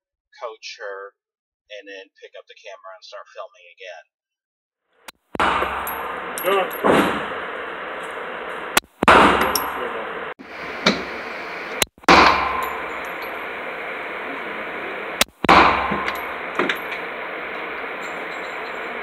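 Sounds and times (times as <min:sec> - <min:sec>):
quieter bangs: 0:05.3 - 0:07.7, 0:08.7 - 0:19.0
pistol shots echoing: 0:12.0 - 0:13.4.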